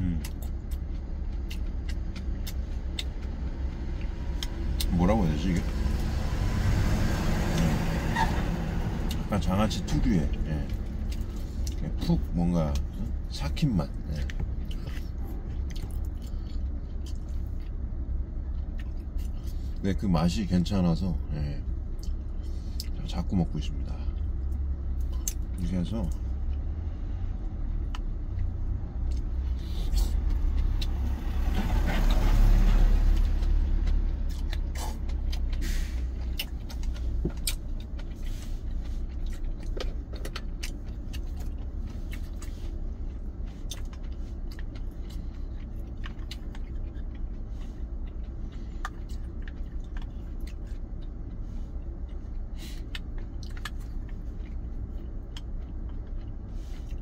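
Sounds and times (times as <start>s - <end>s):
vehicle passing: 1.1s - 12.1s, 26.0s - 57.0s
low rumble: 20.4s - 57.0s.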